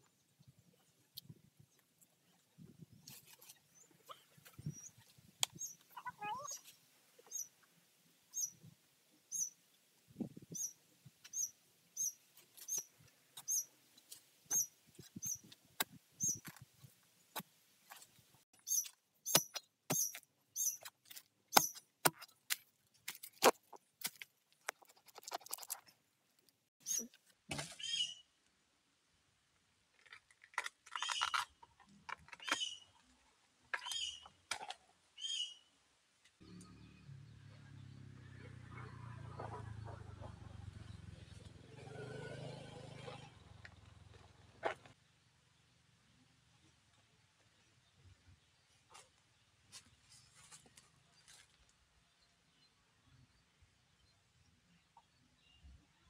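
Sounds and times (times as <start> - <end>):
metal blade chopping into soil: 18.8 - 24.2.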